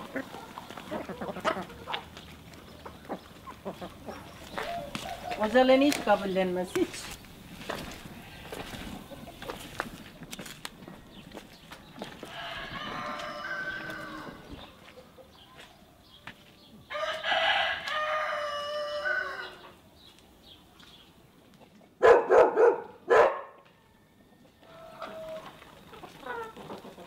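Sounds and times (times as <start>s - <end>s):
hens clucking softly: 0.0s - 5.4s, 24.4s - 27.0s
rooster crowing: 12.0s - 14.5s, 16.9s - 19.7s, 23.8s - 25.6s.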